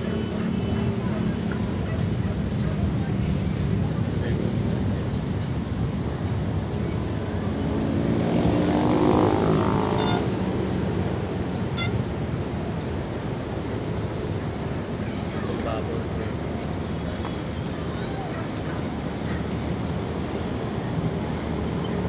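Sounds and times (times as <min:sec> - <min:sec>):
city traffic rumble: 0:00.0 - 0:22.0
wind: 0:00.0 - 0:22.0
engine passing by: 0:06.5 - 0:17.2.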